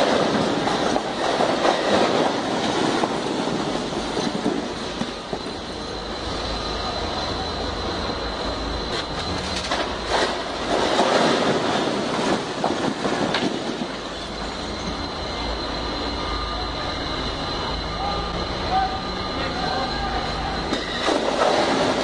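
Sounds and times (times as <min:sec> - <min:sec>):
steady high tone: 0:13.9 - 0:21.0.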